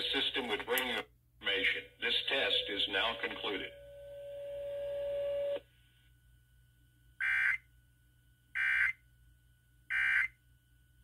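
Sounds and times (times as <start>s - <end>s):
steady tone: 1.5s - 5.6s.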